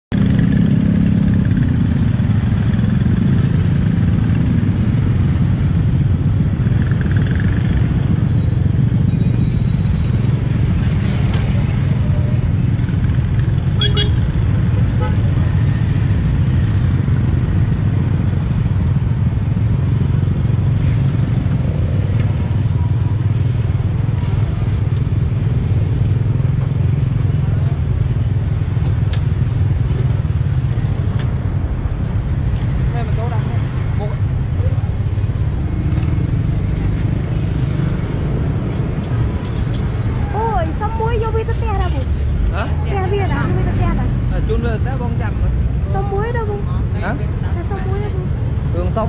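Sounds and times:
motorbike engines: 0.1s - 49.0s
street traffic rumble: 0.1s - 49.0s.

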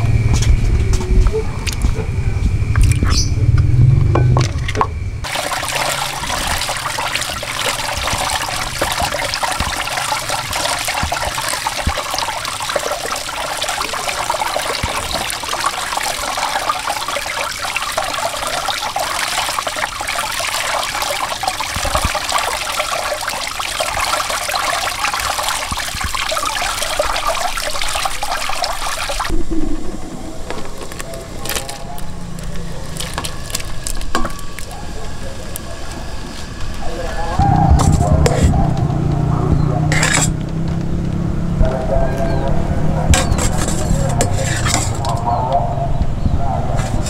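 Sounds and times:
running water splashing: 5.2s - 35.4s, 36.9s - 41.7s, 42.5s - 45.3s.

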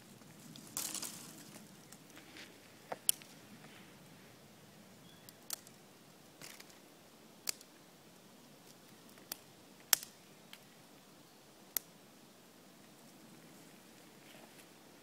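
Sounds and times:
dry twigs snapping: 0.4s - 2.2s, 2.9s - 3.4s, 5.3s - 5.8s, 7.4s - 7.7s, 9.1s - 10.6s.

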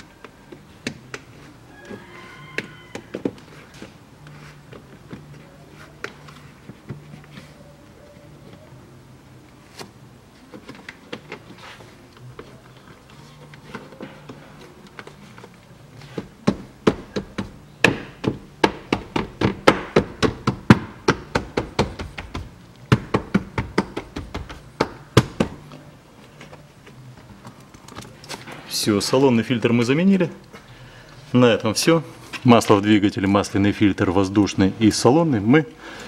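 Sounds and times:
hand tapping rubber seal: 13.6s - 25.8s.

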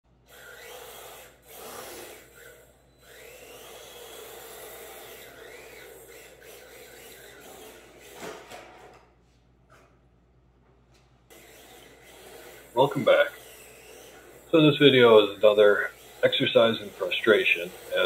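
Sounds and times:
electric motor whining: 0.2s - 8.5s, 11.3s - 18.0s
toy car tyres scrubbing on concrete: 3.0s - 8.2s, 11.4s - 18.0s.

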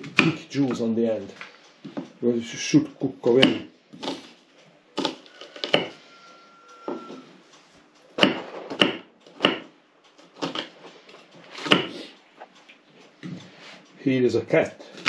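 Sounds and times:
knife chopping on wooden board: 3.4s - 4.3s, 5.0s - 6.0s, 8.2s - 9.7s, 10.4s - 10.8s, 11.6s - 12.0s.

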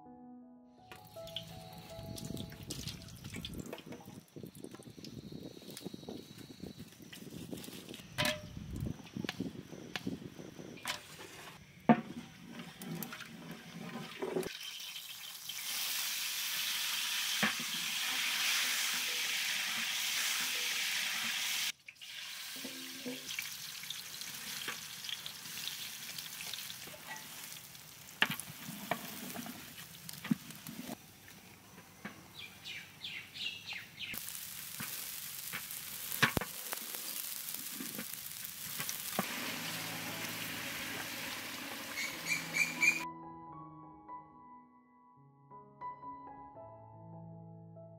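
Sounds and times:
oil sizzling in a pot: 1.0s - 31.0s, 32.4s - 43.0s
wooden spatula scraping a pot: 28.2s - 31.0s.

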